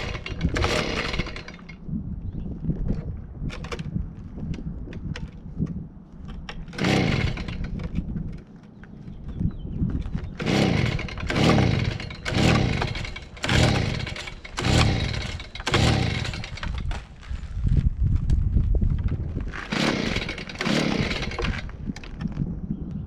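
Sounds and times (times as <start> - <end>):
engine turning over: 0.0 - 1.8, 6.7 - 8.0, 10.2 - 17.1, 19.4 - 22.2
recoil starter rope pulls: 0.0 - 1.8, 6.6 - 8.4, 10.0 - 17.6, 19.0 - 22.4.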